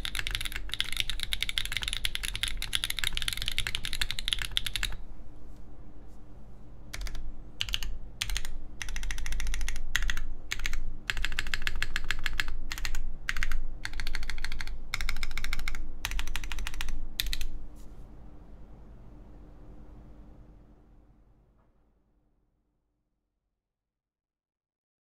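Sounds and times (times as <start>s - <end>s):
mechanical keyboard typing: 0.0s - 5.0s, 6.9s - 17.6s.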